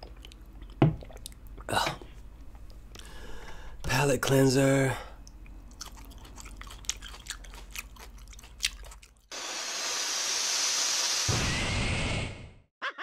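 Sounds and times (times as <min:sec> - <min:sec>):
chewing with wet crunches: 0:05.2 - 0:09.3.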